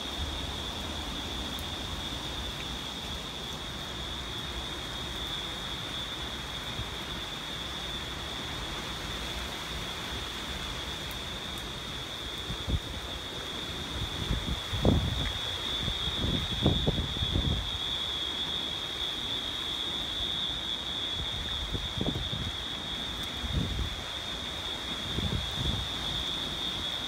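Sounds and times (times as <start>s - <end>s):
wind and rain rushing: 0.0s - 27.0s
wind buffeting microphone: 14.0s - 17.8s.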